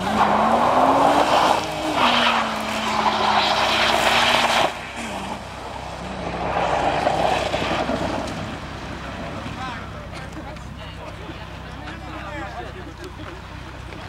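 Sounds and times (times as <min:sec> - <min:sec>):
car engine revving hard: 0:00.0 - 0:08.7.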